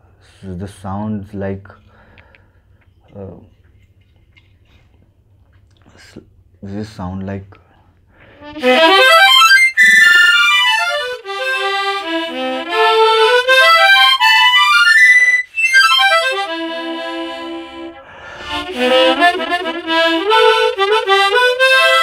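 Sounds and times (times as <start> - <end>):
harmonica playing scale runs: 8.4 - 22.0.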